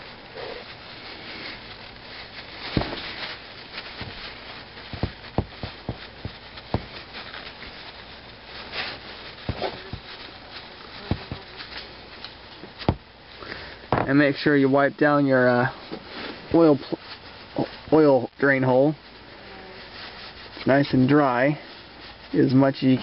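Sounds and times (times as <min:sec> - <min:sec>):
cloth rag rubbing metal: 0:02.4 - 0:11.8.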